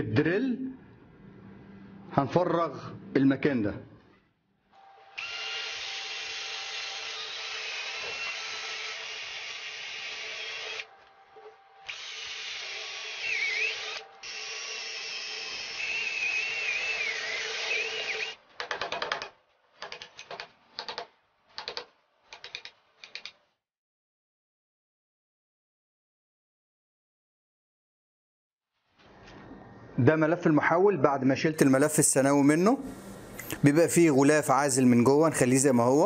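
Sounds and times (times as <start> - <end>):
cordless drill boring into metal: 5.1 - 10.9, 11.9 - 18.4
drill bit squealing: 11.9 - 18.4.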